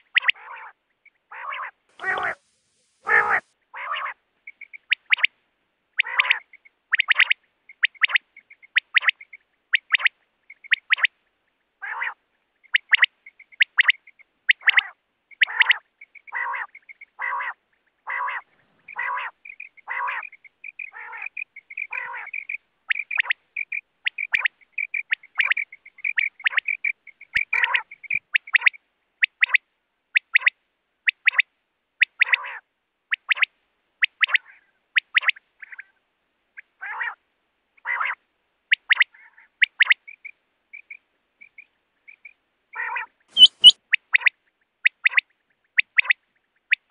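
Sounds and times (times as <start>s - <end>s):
harsher low quail calls: 0.0s - 5.3s, 6.0s - 11.1s, 11.8s - 29.6s, 32.0s - 32.6s, 36.8s - 37.2s, 37.8s - 45.2s
quail calling: 0.0s - 5.3s, 6.0s - 11.1s, 11.8s - 29.6s, 31.1s - 36.0s, 36.6s - 37.2s, 37.8s - 46.9s.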